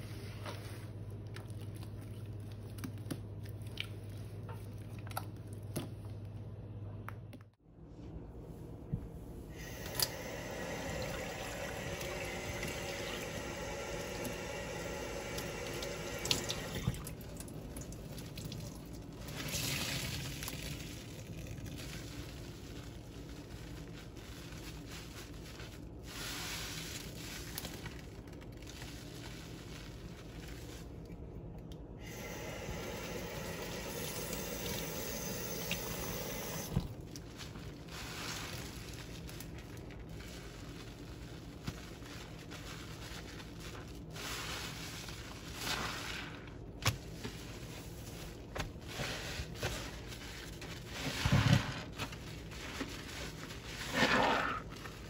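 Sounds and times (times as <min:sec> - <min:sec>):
soapy sponges squeezed: 0:09.6 - 0:31.2, 0:32.0 - 0:55.0
tap water running into sink: 0:09.8 - 0:18.6.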